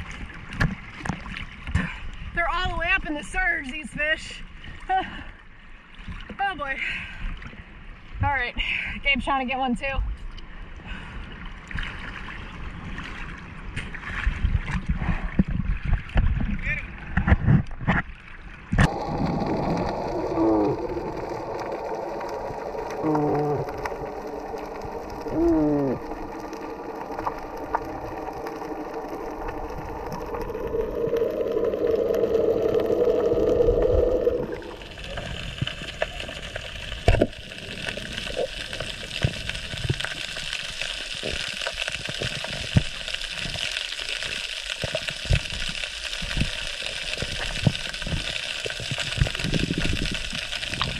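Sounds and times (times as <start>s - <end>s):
outboard motor droning underwater: 18.8s - 43.3s
hissing crackle of small clicks: 18.8s - 50.9s.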